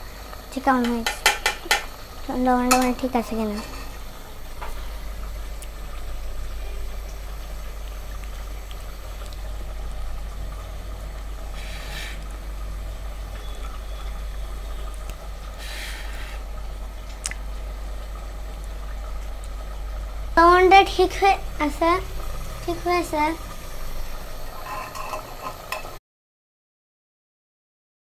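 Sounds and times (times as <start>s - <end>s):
curry simmering in a pot: 0.0s - 26.0s
steady low hum: 0.0s - 26.0s
short bursts of hiss: 11.6s - 12.2s.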